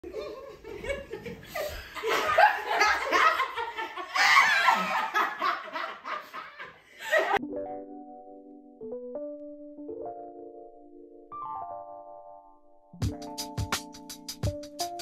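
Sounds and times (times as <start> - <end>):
group laughing and shrieking: 0.1 - 7.4.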